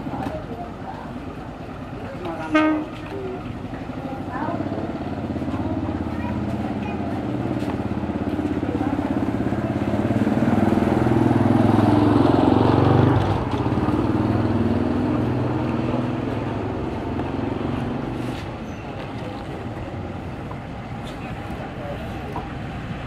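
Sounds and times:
locomotive engine running: 0.0s - 23.0s.

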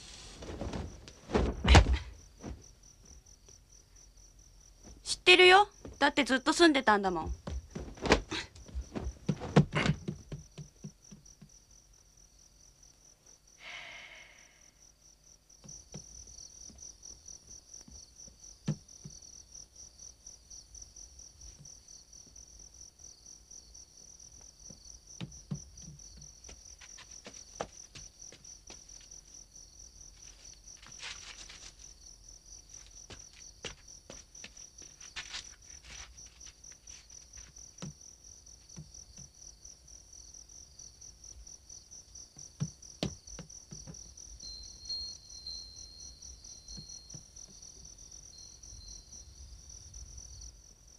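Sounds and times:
footsteps: 0.0s - 3.2s, 7.2s - 11.0s, 25.2s - 29.2s, 30.2s - 32.0s, 32.7s - 38.0s
crickets chirping: 0.0s - 50.9s.

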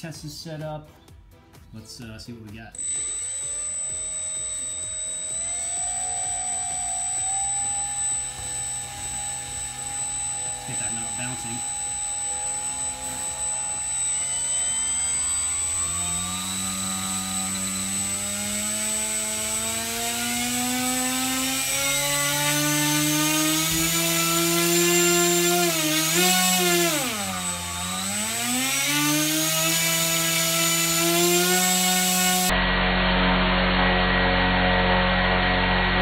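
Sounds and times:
steady hum: 2.8s - 32.9s
electric motor propeller whine: 2.8s - 36.0s.

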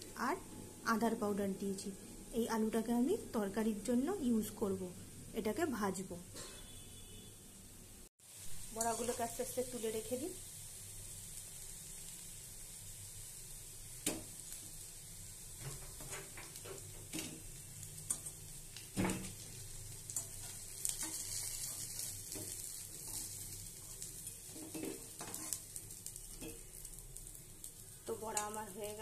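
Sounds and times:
fritters sizzling in hot oil: 8.2s - 29.0s
spatula scraping and knocking on pan: 20.2s - 25.6s.

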